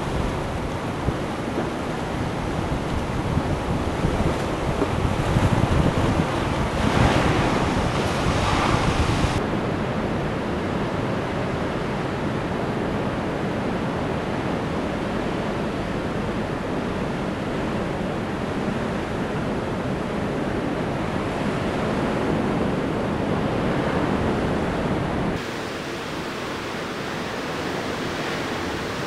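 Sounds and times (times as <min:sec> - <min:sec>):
wind noise on microphone: 0:00.0 - 0:29.0
surf breaking against rocks: 0:04.1 - 0:09.4.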